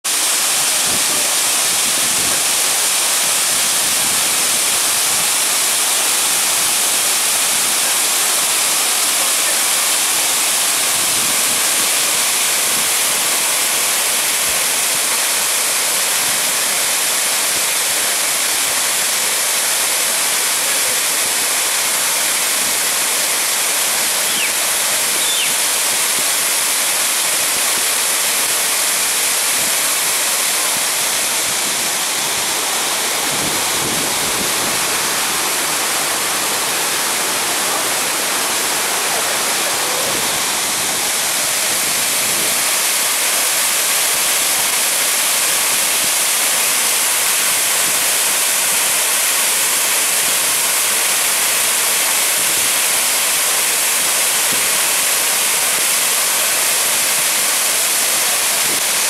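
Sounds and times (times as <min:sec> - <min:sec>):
waterfall pouring onto rocks: 0:00.1 - 0:59.0.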